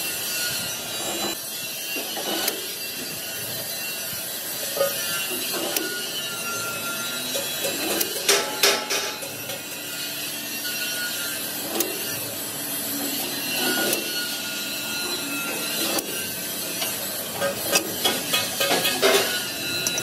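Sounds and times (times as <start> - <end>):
metal rasping and scraping: 0.0 - 20.0.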